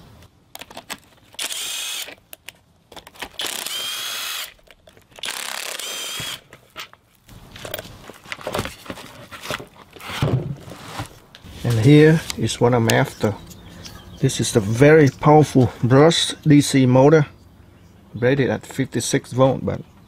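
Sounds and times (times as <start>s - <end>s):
cordless driver whirring: 1.4s - 2.2s, 3.4s - 4.6s, 5.2s - 6.4s.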